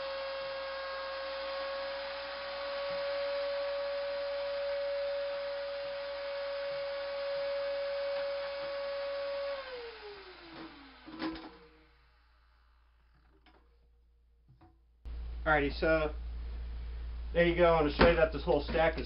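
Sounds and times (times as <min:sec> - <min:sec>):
shop vacuum motor whining: 0:00.0 - 0:13.6.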